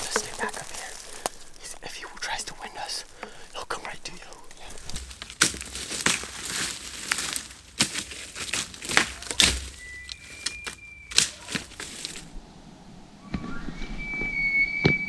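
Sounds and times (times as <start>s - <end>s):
dry brush and leaves crunching: 0.0s - 12.4s
faint high whistle: 9.7s - 11.5s, 13.2s - 15.0s.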